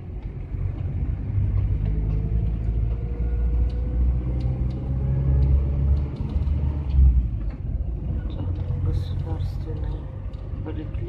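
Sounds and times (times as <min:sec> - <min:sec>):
van engine and road rumble: 0:00.0 - 0:11.0.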